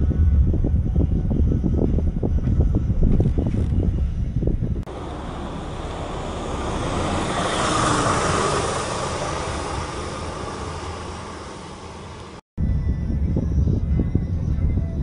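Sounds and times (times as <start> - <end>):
bus driving past: 4.8 - 12.4.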